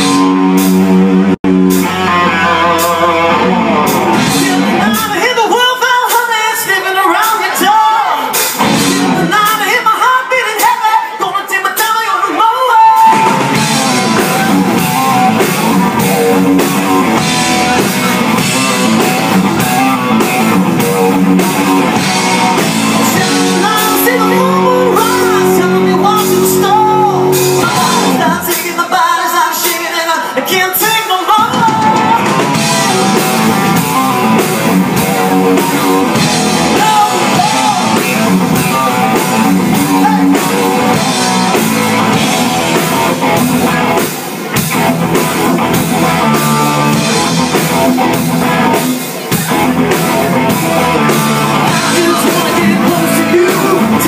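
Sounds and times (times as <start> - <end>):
live rock band playing: 0.0 - 54.0
male singer singing: 4.2 - 15.5, 23.0 - 41.6, 49.4 - 54.0.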